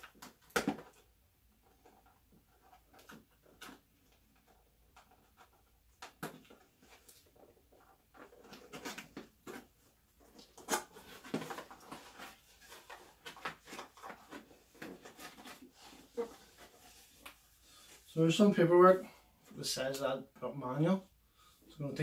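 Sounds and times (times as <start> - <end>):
packaging rustling: 8.1 - 17.5.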